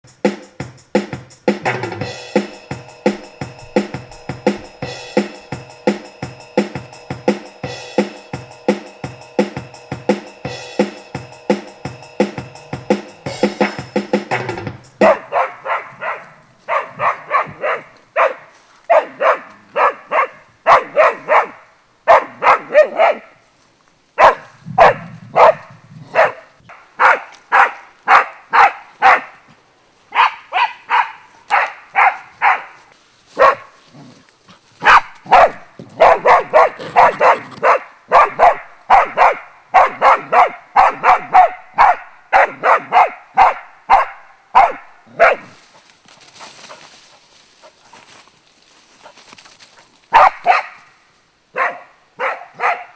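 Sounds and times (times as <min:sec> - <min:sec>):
dog barking rapidly: 0:15.0 - 0:23.4, 0:24.2 - 0:29.4, 0:30.1 - 0:32.8, 0:33.4 - 0:33.8, 0:34.8 - 0:45.6, 0:50.1 - 0:50.9, 0:51.5 - 0:52.9.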